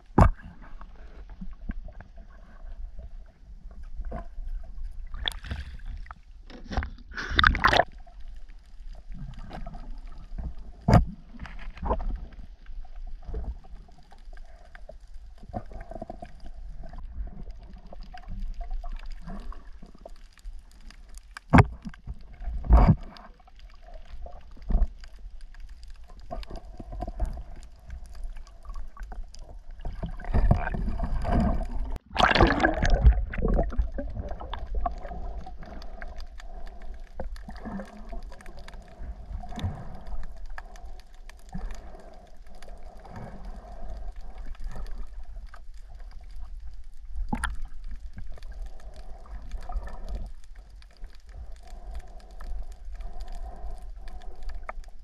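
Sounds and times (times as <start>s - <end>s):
seawater sloshing and gurgling: 4.1s - 8.2s, 26.1s - 42.2s
loud water splash: 32.1s - 33.7s.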